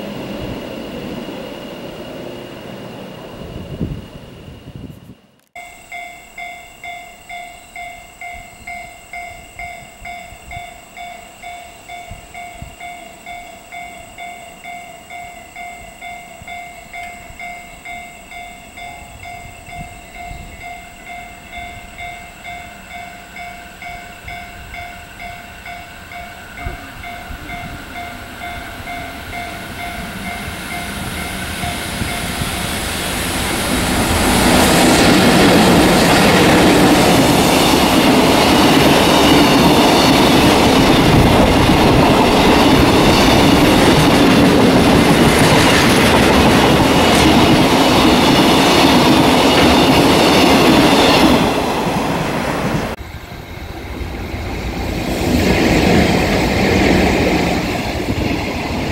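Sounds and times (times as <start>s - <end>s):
freight train rumble: 0.0s - 58.9s.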